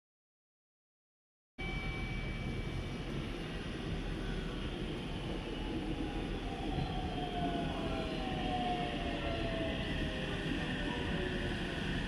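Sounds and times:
electric train rumble: 0:01.6 - 0:12.0.

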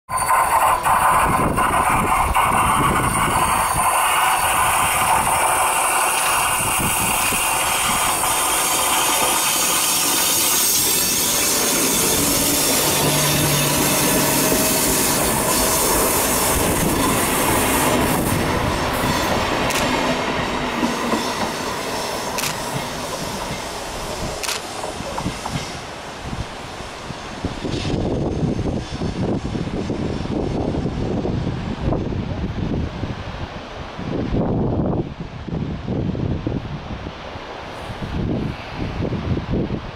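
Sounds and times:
wheels clicking over rail joints: 0:00.1 - 0:17.4
train wheels rumbling on rails: 0:00.1 - 0:36.2.

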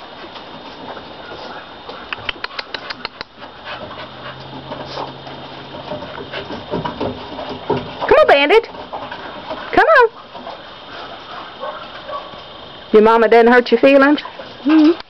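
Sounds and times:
quick sharp clicks: 0:02.1 - 0:03.4
low dog noises: 0:09.6 - 0:12.6.

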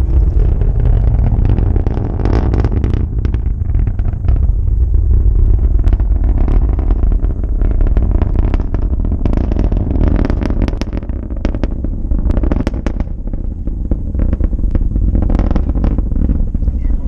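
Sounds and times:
rocket engines rumbling and crackling: 0:00.0 - 0:17.0.

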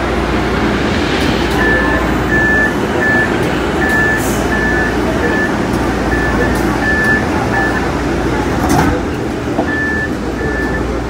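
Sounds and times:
light-rail car rumbling: 0:00.0 - 0:11.0.

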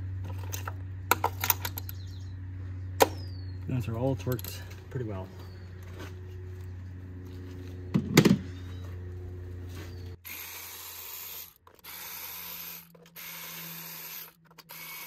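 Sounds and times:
steady low hum: 0:00.0 - 0:15.0
metal tool clanking: 0:04.2 - 0:04.8.

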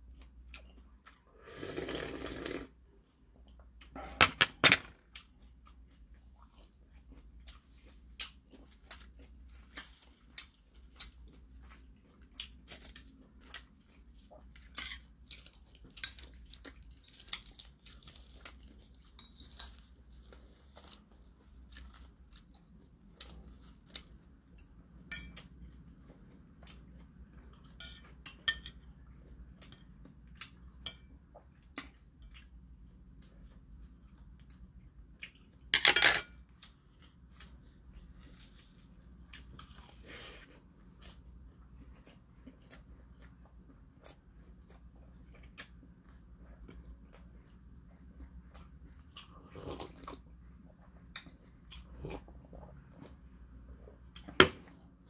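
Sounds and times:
chewing: 0:05.0 - 0:24.8, 0:36.5 - 0:55.0.

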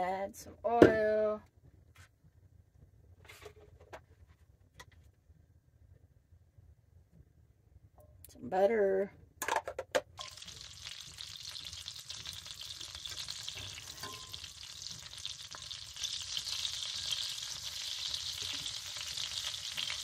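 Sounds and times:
oil and butter sizzling in skillet: 0:10.2 - 0:20.0.

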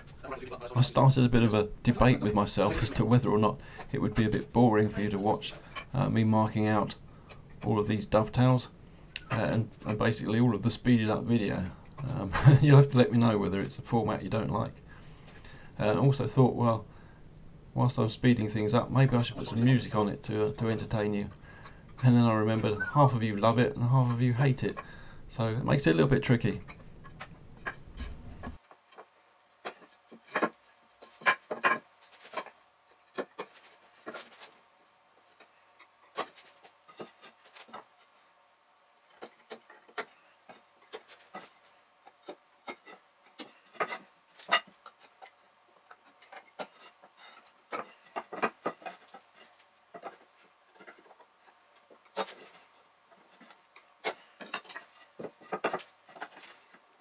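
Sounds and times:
pencil tapping and scratching wood: 0:27.0 - 0:34.5, 0:39.1 - 0:56.8.

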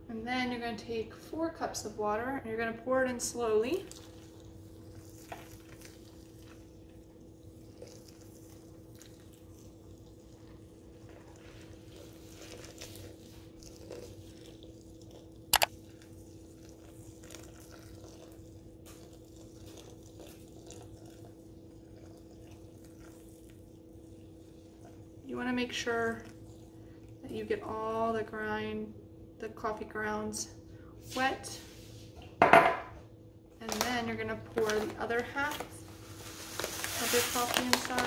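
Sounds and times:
water trickling onto coffee grounds: 0:03.0 - 0:28.2, 0:33.6 - 0:38.0.

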